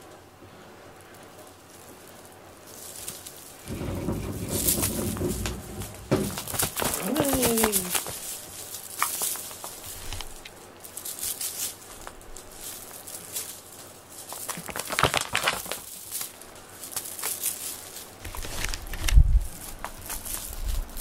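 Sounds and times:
cat toy swishing and crinkling: 0:01.0 - 0:21.0
dull low thump: 0:03.7 - 0:06.8.

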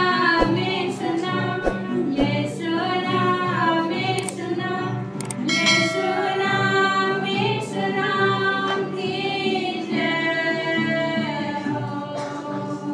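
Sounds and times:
group singing a hymn: 0:00.0 - 0:12.9.

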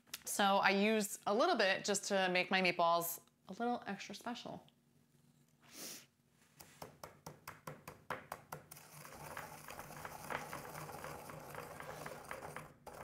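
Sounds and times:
pestle grinding seeds: 0:08.0 - 0:13.0.

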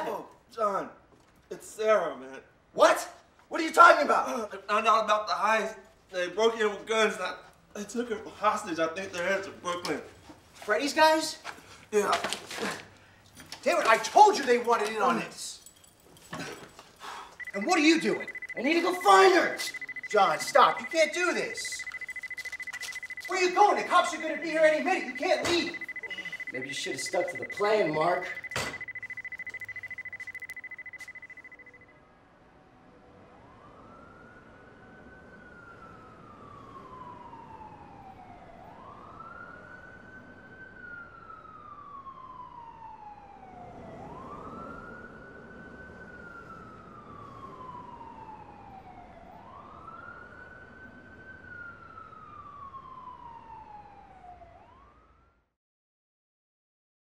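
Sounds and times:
police siren wailing: 0:13.6 - 0:55.4
steady high tone: 0:17.4 - 0:31.9.

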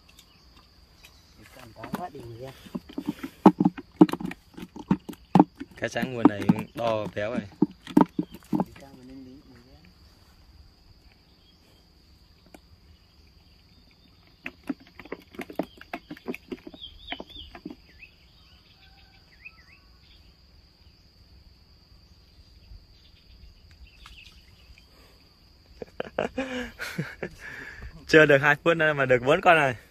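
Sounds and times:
insects trilling: 0:00.0 - 0:29.9
sharp clicks and knocks: 0:01.8 - 0:09.1
short bird chirps: 0:23.0 - 0:25.0.

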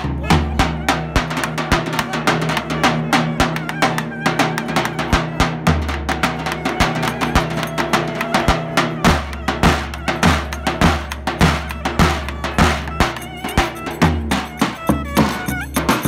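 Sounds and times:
deep bass drum beats: 0:04.4 - 0:16.0.

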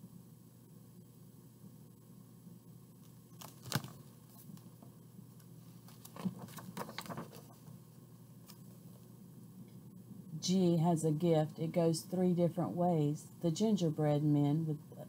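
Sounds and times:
paper page rustling: 0:03.0 - 0:04.8, 0:05.6 - 0:07.7.

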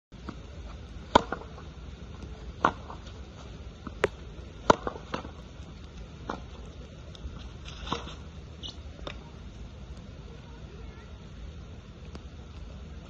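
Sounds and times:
tennis ball struck and bouncing: 0:01.1 - 0:01.7, 0:02.6 - 0:03.2, 0:03.8 - 0:05.4.

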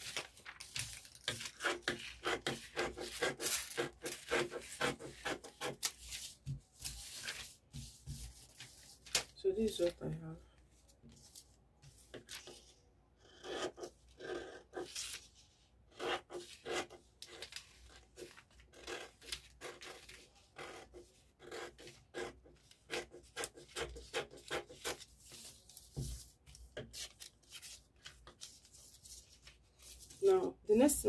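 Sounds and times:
scissors cutting paper: 0:00.0 - 0:06.2, 0:16.0 - 0:25.1
paper rustling and crinkling: 0:00.0 - 0:10.0, 0:24.8 - 0:30.3.

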